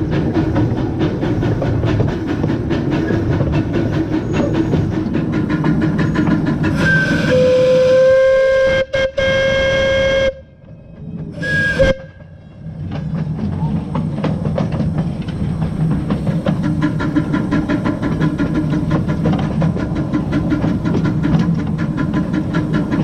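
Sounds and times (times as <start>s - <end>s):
steam engine rhythmic clatter: 0.0s - 23.0s
steam whistle blast: 6.7s - 10.5s, 11.4s - 12.2s.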